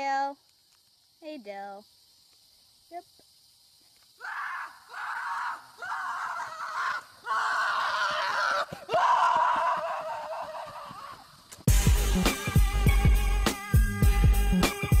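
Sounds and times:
person laughing hard: 9.2 - 11.2
loud music: 11.7 - 15.0.

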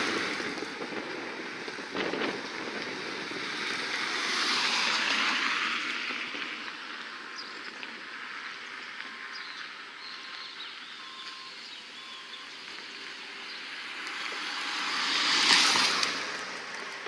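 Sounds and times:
rolling road noise: 0.0 - 17.0
car passing close by: 2.0 - 6.7, 13.5 - 17.0.

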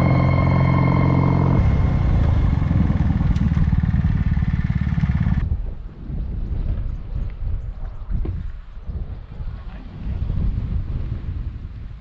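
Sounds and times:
motorcycle engine running: 0.0 - 5.4.

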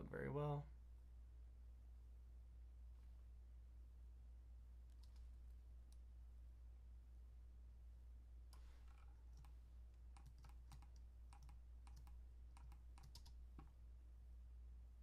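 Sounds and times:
low steady hum: 0.0 - 15.0
computer keys clicking: 4.9 - 5.3, 8.5 - 13.7.

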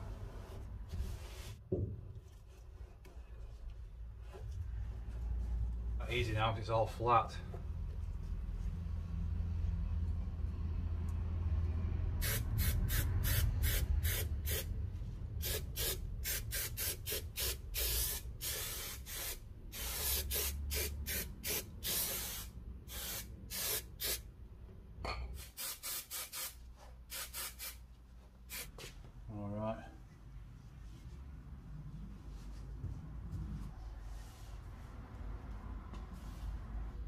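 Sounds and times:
aerosol spray hissing: 12.2 - 14.7, 15.4 - 24.2, 25.4 - 27.8.

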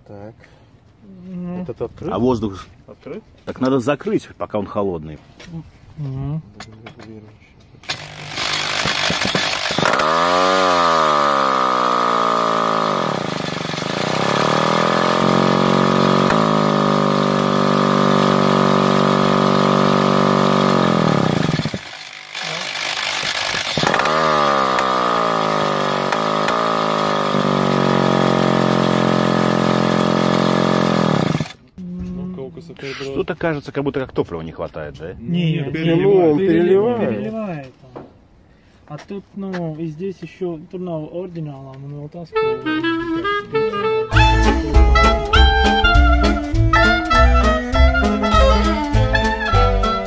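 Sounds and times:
electric drill whine: 7.8 - 31.6.

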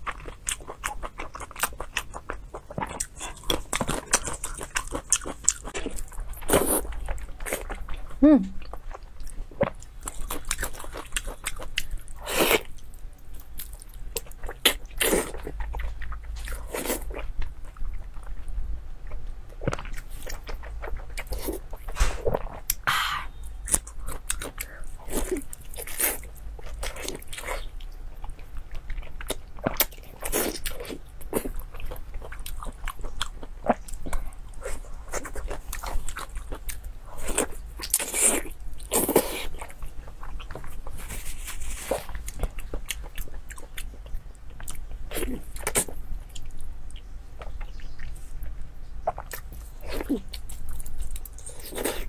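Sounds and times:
wet chewing and slurping: 0.0 - 12.8.

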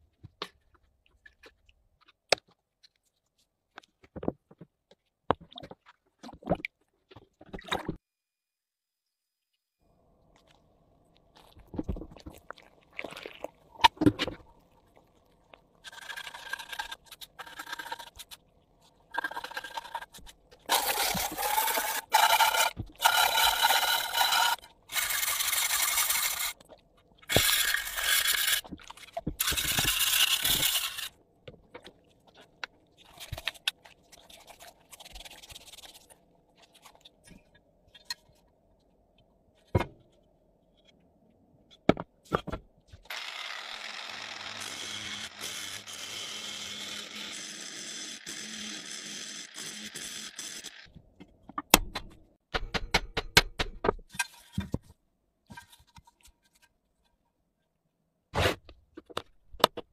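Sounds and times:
scrubbing and splashing water: 31.9 - 37.2.

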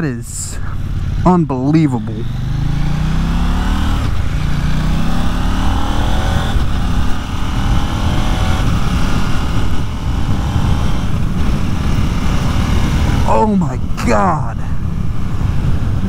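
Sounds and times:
motorcycle engine accelerating: 0.6 - 16.0
wind rush on microphone: 5.7 - 14.0, 14.6 - 16.0.

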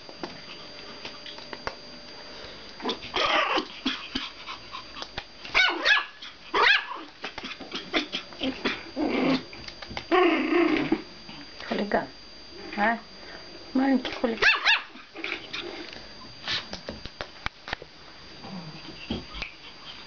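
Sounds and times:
puppy barking and yipping: 3.1 - 4.0, 5.5 - 7.1, 14.4 - 15.0.

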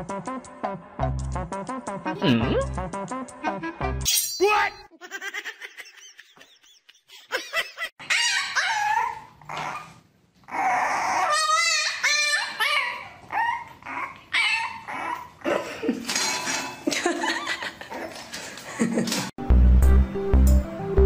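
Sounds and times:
puppy whining and yelping: 8.0 - 15.4.

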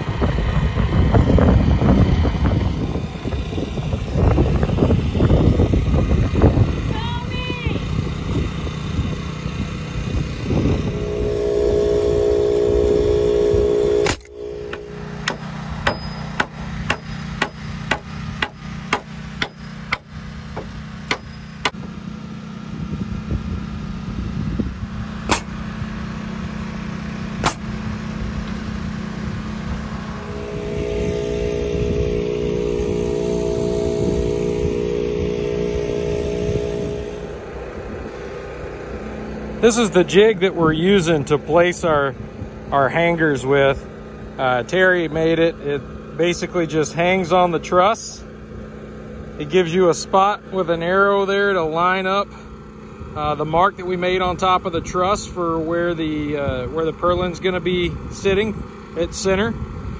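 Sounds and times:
steady mechanical hum: 0.0 - 59.9
hammer blows on nails: 14.0 - 21.8, 25.3 - 25.6, 27.4 - 27.7.

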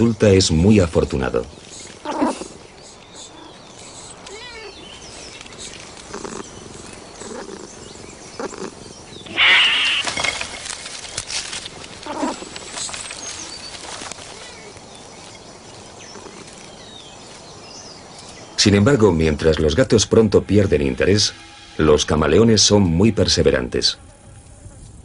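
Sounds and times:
branches rustling: 0.0 - 19.9
cat hissing: 1.6 - 7.8, 8.4 - 10.2, 12.0 - 12.6.

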